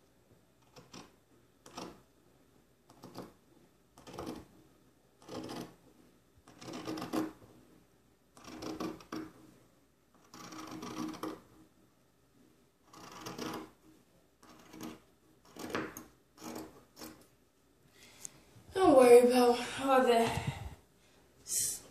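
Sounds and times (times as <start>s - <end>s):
scissors cutting fabric: 4.0s - 4.5s, 5.2s - 5.8s, 6.5s - 7.4s, 8.4s - 9.3s, 10.2s - 11.4s, 12.9s - 13.8s, 14.4s - 17.3s.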